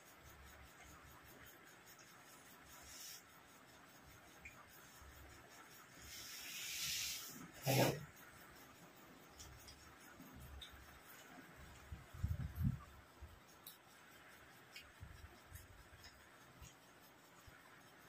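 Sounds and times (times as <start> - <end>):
hiss of drawn-in air: 2.5 - 3.6, 5.8 - 8.1.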